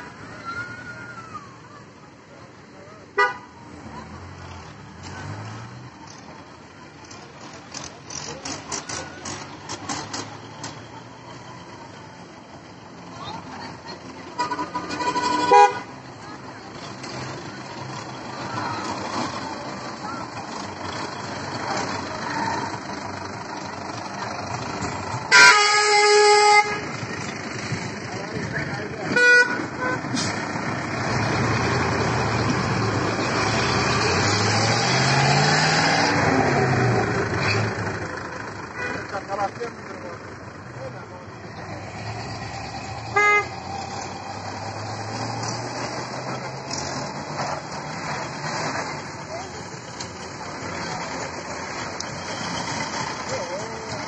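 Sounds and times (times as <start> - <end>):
vehicle engine and road noise: 0.0 - 54.0
vehicle horn blast: 3.2 - 3.5, 14.4 - 15.9, 25.3 - 26.9, 29.1 - 30.0, 38.8 - 39.0, 43.1 - 43.5.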